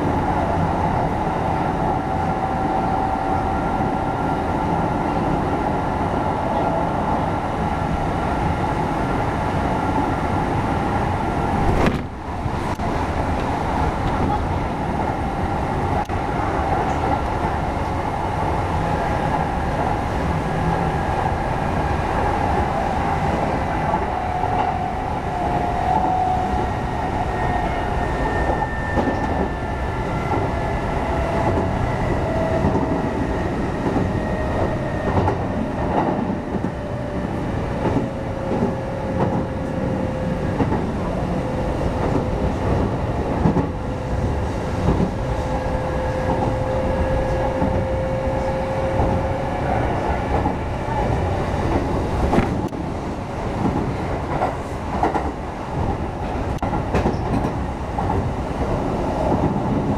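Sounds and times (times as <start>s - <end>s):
train rumble: 0.0s - 59.9s
rail joint clacks: 22.4s - 59.9s.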